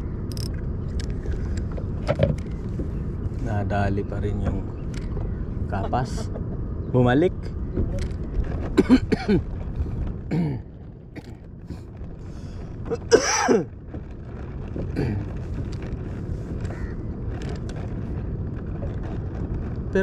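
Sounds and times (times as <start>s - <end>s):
steady low rumble: 0.0s - 20.0s
man clearing throat: 10.3s - 11.3s.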